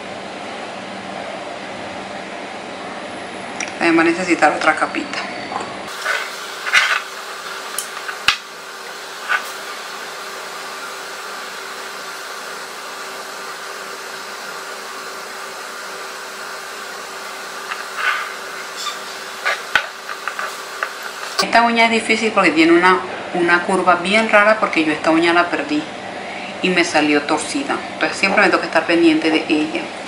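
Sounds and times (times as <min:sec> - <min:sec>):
airy background hiss: 0:05.9 - 0:21.9.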